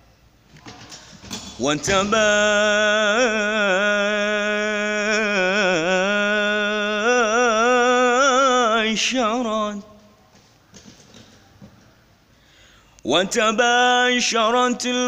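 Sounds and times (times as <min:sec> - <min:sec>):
man chanting devotional recitation: 0:01.2 - 0:10.2, 0:13.0 - 0:15.0.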